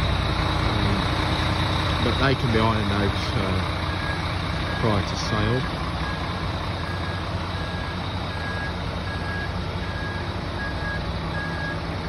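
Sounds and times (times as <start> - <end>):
diesel engine idling: 0.0 - 12.0
high electronic warning beep: 3.9 - 11.9.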